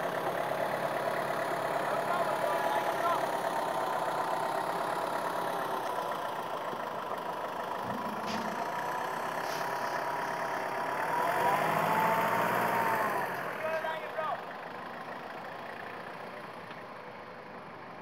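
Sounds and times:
off-road vehicle engines idling: 0.0s - 18.0s.

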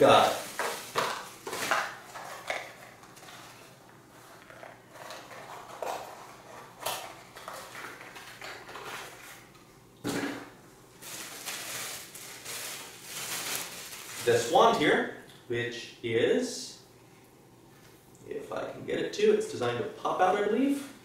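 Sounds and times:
packaging rustling and crinkling: 0.0s - 9.6s, 11.0s - 14.6s.

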